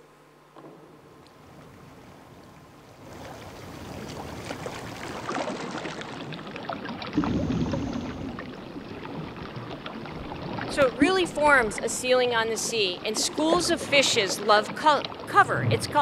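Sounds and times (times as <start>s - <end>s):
diver's exhaled bubbles: 3.0s - 10.8s.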